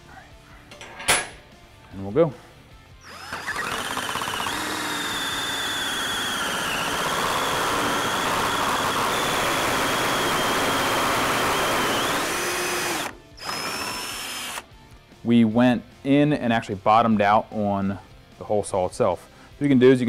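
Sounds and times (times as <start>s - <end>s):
hole saw cutting steel tubing: 3.0s - 14.6s.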